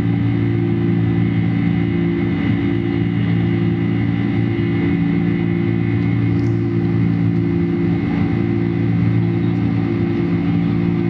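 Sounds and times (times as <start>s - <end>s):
jet engines roaring in cabin: 0.0s - 11.0s.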